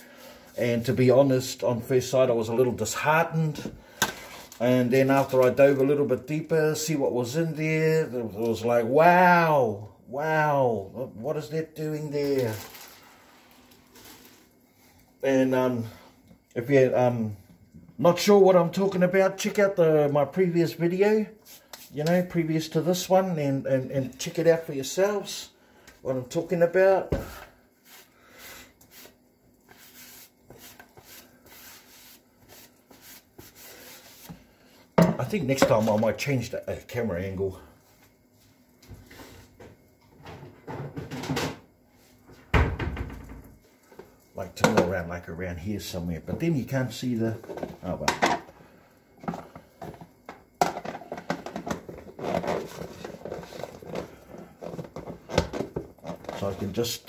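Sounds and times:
faint steady hum: 0.0s - 57.0s
crinkly rustling: 12.2s - 14.6s
faint rubbing or scraping strokes: 27.8s - 34.8s, 37.8s - 39.5s.

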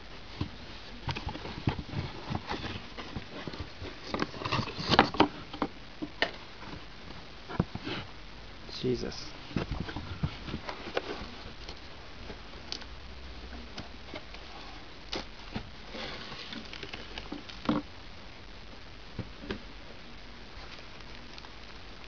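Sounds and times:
cardboard and cellophane rustling: 0.0s - 8.1s, 9.4s - 12.8s, 13.6s - 17.9s.

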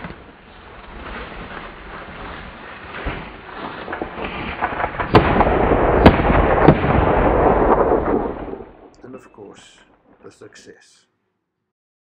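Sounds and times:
rifle shot: 4.3s - 8.9s.

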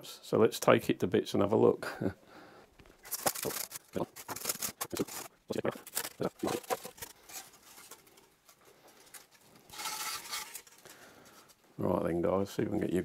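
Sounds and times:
foam scraping and rubbing: 3.0s - 11.6s.

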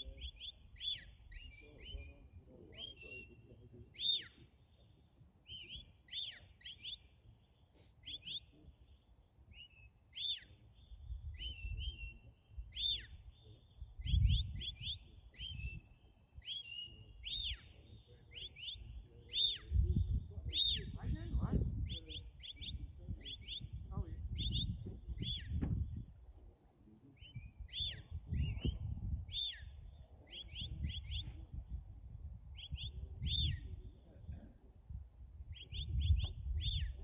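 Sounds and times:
wind buffeting microphone: 11.0s - 12.0s, 13.8s - 15.9s, 19.0s - 26.5s, 27.4s - 37.0s.

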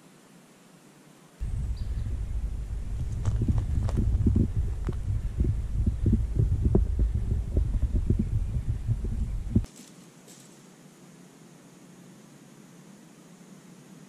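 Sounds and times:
muffled thumps: 1.4s - 9.7s
wind buffeting microphone: 1.4s - 9.7s.

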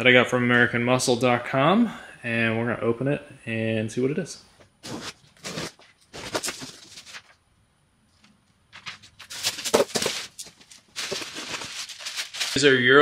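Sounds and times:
cardboard box tearing: 4.8s - 7.2s, 9.2s - 12.6s
packaging rustling: 4.8s - 7.4s, 8.7s - 13.0s.

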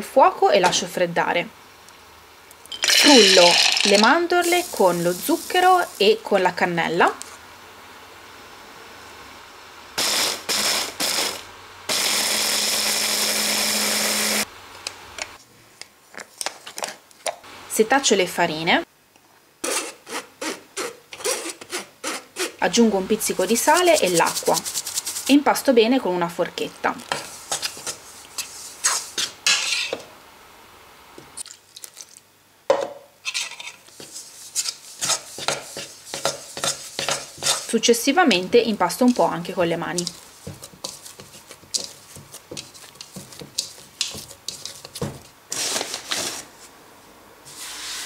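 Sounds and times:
hands working dough: 23.2s - 25.7s, 26.8s - 29.8s, 33.8s - 46.8s
fork scraping a mixing bowl: 23.6s - 25.4s, 27.1s - 30.0s, 33.3s - 37.8s, 40.0s - 46.3s.

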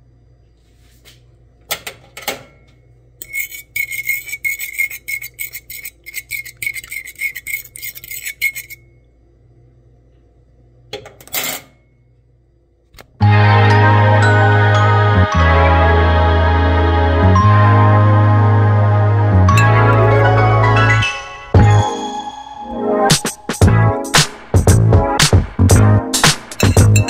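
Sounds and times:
fork whisking egg in bowl: 3.2s - 8.8s.

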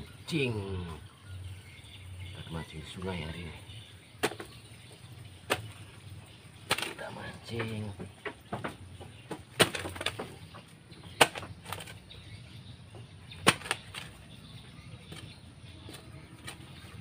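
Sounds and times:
earth knocks and scrapes: 6.6s - 12.0s, 13.3s - 14.2s
hoe striking damp soil: 13.3s - 14.2s.

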